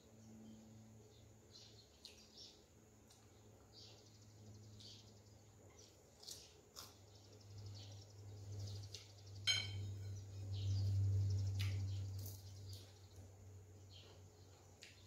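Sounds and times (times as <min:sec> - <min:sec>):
low hum: 0:07.4 - 0:14.5.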